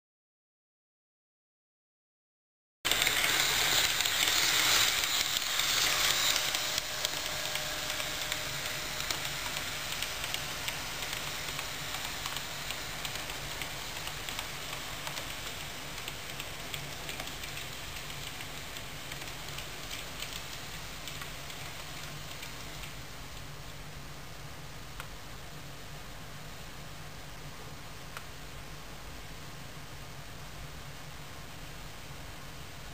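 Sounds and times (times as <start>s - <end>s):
model train running on track: 2.9s - 23.0s.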